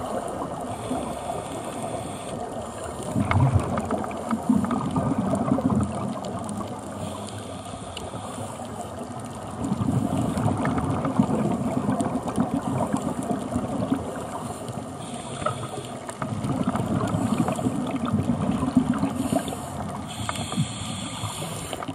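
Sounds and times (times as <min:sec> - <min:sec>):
regulator hiss on inhale: 0:00.0 - 0:03.3, 0:06.8 - 0:09.1, 0:09.8 - 0:10.7, 0:14.2 - 0:18.1, 0:19.0 - 0:21.9
bubbling exhaled air underwater: 0:00.0 - 0:07.3, 0:08.0 - 0:21.9.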